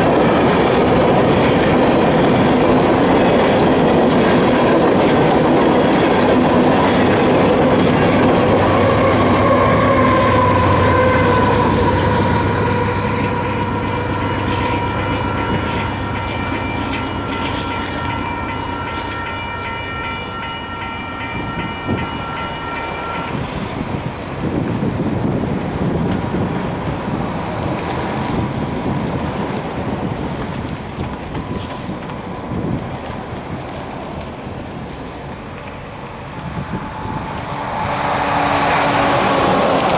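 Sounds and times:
road vehicle approaching: 0.0s - 17.3s, 23.6s - 39.9s
crossing warning bell ringing: 0.0s - 24.3s
train low rumble: 0.0s - 39.9s
wind rumbling on microphone: 23.2s - 39.9s.

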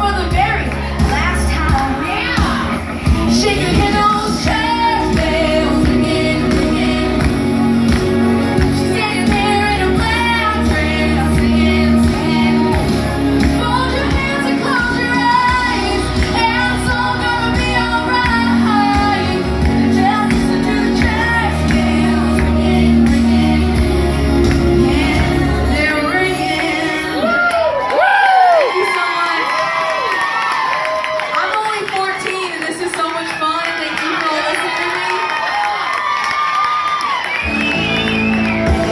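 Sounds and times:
backing track with bass line: 0.0s - 27.2s, 37.4s - 38.9s
girl singing into a microphone: 3.3s - 7.2s, 13.6s - 23.3s.

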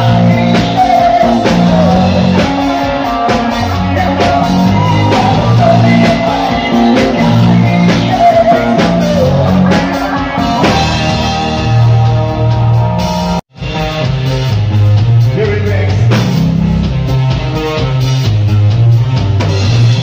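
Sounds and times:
man singing into a microphone: 0.0s - 11.4s
drums: 0.0s - 20.0s
electric guitar: 0.0s - 20.0s
low bass notes: 0.0s - 20.0s.

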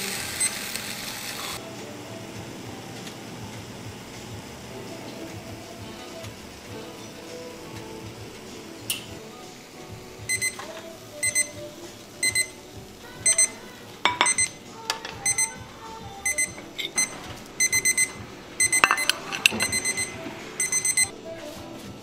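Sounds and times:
kitchen timer beeping: 0.0s - 1.0s, 10.2s - 12.6s, 13.2s - 14.6s, 15.2s - 21.1s
metal tongs clacking: 16.6s - 17.2s, 18.7s - 19.9s.

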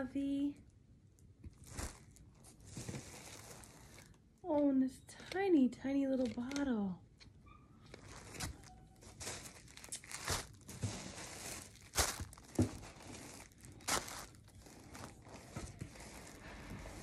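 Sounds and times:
tissue paper and plastic crinkling: 1.5s - 4.3s, 7.8s - 17.0s.

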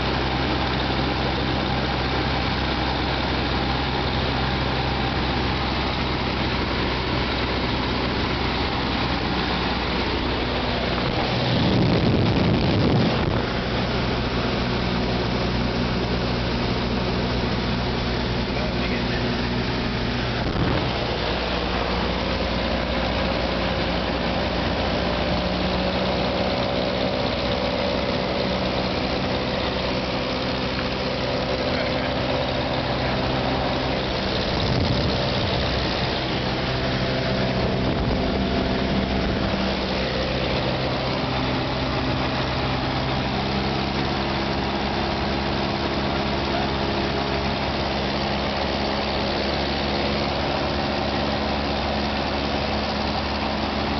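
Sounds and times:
light aircraft engine drone: 0.0s - 53.9s
rush of air noise: 8.9s - 25.5s, 29.6s - 43.3s.

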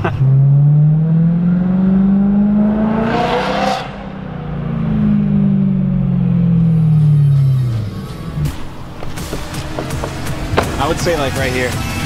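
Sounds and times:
car engine accelerating: 0.0s - 12.0s.

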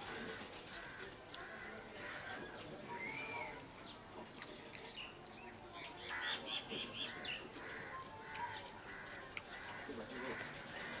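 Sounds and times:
wild birds chirping: 4.9s - 11.0s.

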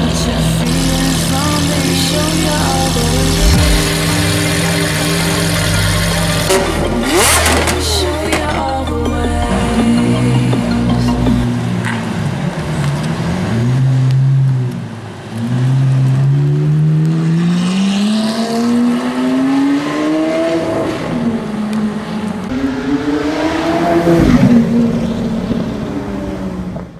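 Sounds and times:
sports car engine accelerating: 0.0s - 8.0s.

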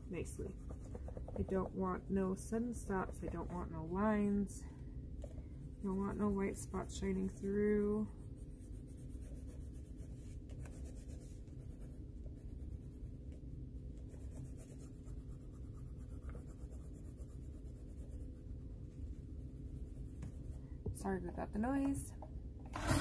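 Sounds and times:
pencil scratching on paper: 0.0s - 4.0s, 5.8s - 13.2s, 14.0s - 18.6s
steady low hum: 0.0s - 22.8s.

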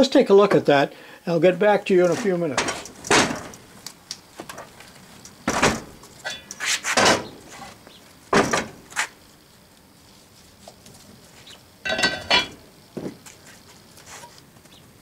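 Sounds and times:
metal and wood knocks and scrapes: 2.1s - 3.7s, 5.4s - 9.1s, 11.8s - 13.2s.

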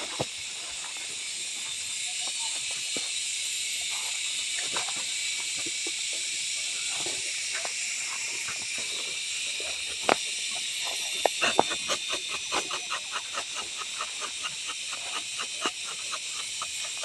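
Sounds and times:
steady high hiss: 0.0s - 17.0s
sharp scraping strokes: 11.1s - 17.0s.

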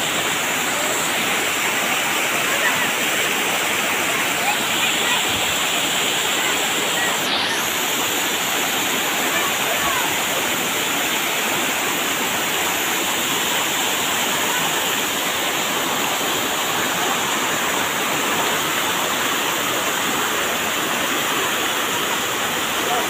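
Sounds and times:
waterfall rushing: 0.0s - 23.0s.

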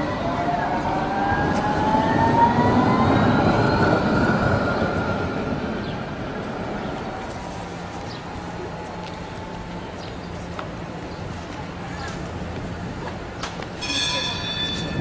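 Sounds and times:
electric tram passing: 0.0s - 15.0s.

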